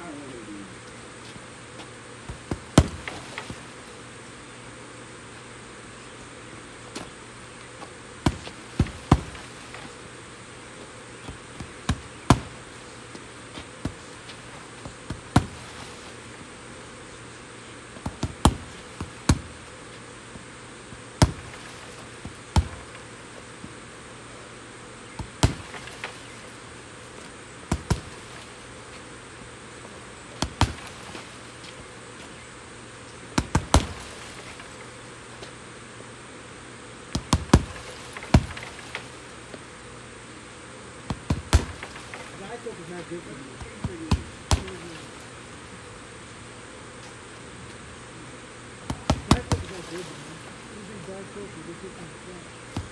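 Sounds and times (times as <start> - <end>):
punches and kicks on heavy bag: 2.3 - 3.5, 8.2 - 9.9, 11.3 - 12.8, 14.8 - 16.0, 18.0 - 19.6, 21.2 - 23.0, 25.2 - 26.3, 27.7 - 28.3, 30.4 - 31.2, 33.4 - 34.4, 37.1 - 38.9, 41.1 - 42.6, 43.6 - 45.0, 48.9 - 50.1.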